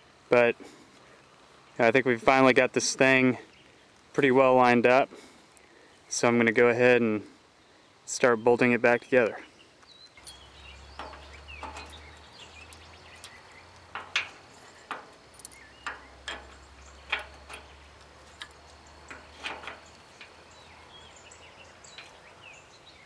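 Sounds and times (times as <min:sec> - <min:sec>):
metal clicks and taps: 0:10.2 - 0:20.4.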